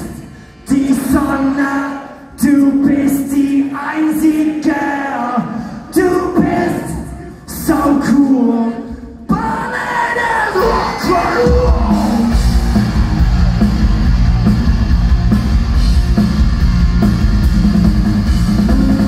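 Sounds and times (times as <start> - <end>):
live rock band playing: 11.4 - 19.0.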